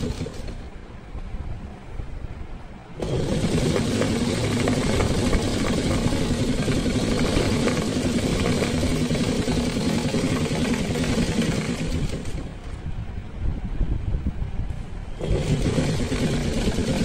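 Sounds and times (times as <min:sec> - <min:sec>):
sewing machine clattering: 0:00.0 - 0:00.7, 0:03.0 - 0:12.8, 0:15.2 - 0:17.0.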